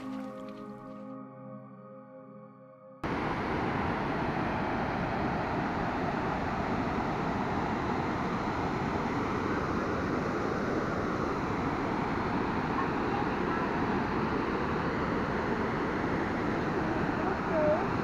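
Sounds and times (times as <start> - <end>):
waterfall rushing: 3.1 - 9.5.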